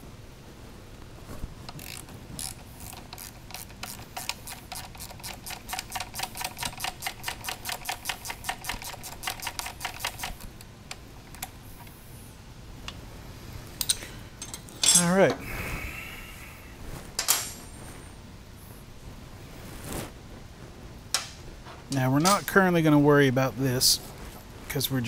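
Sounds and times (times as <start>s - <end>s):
ratchet wrench clicking: 1.7s - 10.5s.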